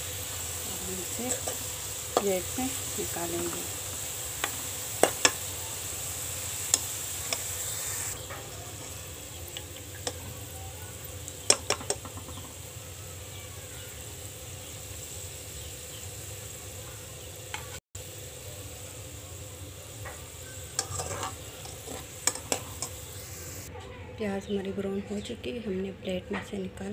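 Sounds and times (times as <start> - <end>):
onions sizzling in hot oil: 0.0 - 23.7
metal spoon scraping pot: 20.7 - 23.0.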